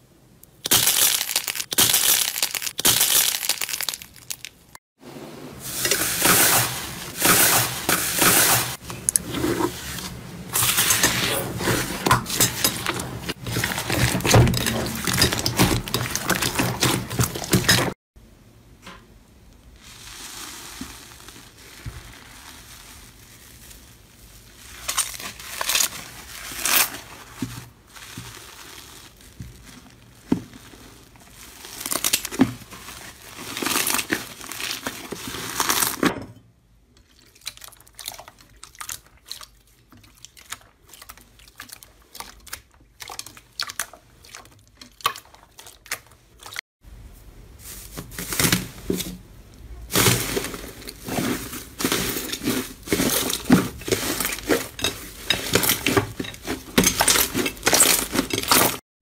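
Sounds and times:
foil crinkling: 0.6 - 4.7, 9.8 - 18.0, 19.8 - 36.1, 47.6 - 49.2, 49.9 - 58.8
hands squishing slime: 37.0 - 46.6.

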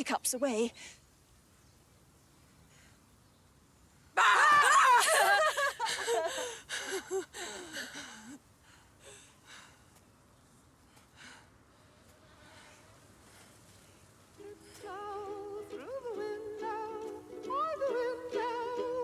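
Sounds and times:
woman screaming: 4.2 - 5.4
woman laughing: 4.2 - 8.4.

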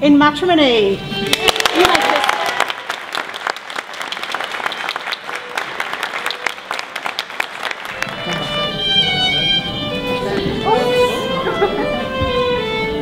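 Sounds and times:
crowd applauding: 1.2 - 9.8.

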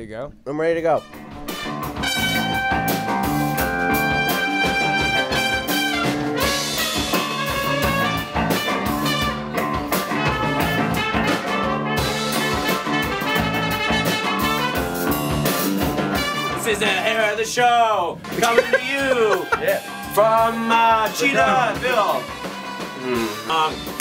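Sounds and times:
band music led by trumpet: 0.9 - 17.1, 18.3 - 24.0
steady beat: 18.2 - 24.0.

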